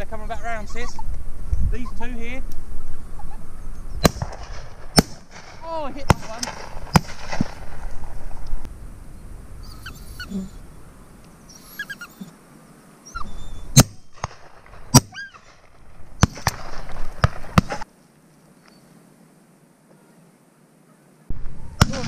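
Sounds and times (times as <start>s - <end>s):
birds calling: 0.0s - 19.0s
shotgun shots: 4.0s - 7.9s, 13.8s - 17.8s, 21.8s - 22.0s.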